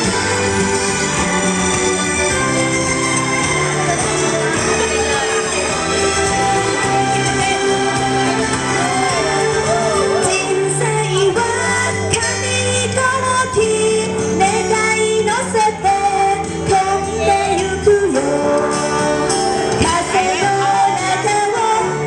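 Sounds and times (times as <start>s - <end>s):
instrumental backing track: 0.0s - 22.0s
woman singing into a microphone: 10.2s - 22.0s.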